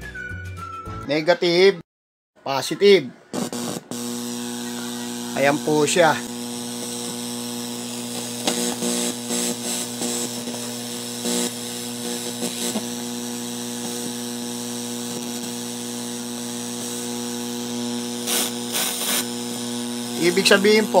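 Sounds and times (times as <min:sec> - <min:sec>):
speaker mains hum: 0:02.8 - 0:21.0
scratchy crackles: 0:03.3 - 0:21.0.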